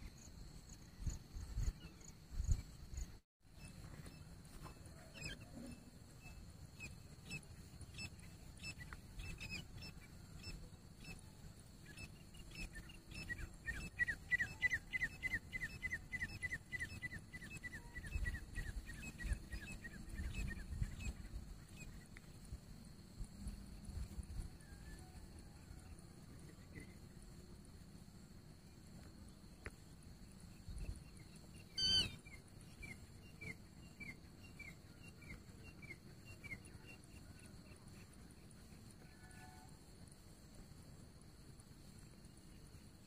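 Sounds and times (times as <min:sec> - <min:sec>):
francolin calling: 0:31.1 - 0:38.1.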